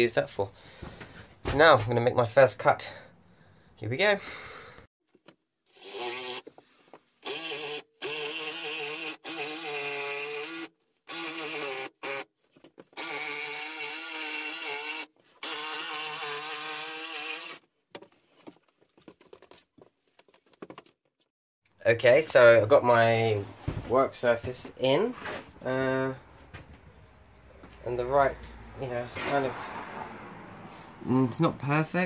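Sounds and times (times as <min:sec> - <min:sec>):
jigsaw cutting worktop: 0:05.7 - 0:06.6, 0:07.2 - 0:12.3, 0:12.9 - 0:17.6.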